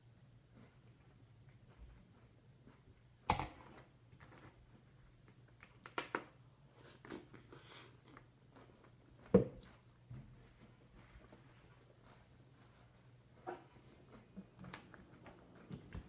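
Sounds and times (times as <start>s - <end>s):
chewing: 0.5s - 3.2s, 6.8s - 16.0s.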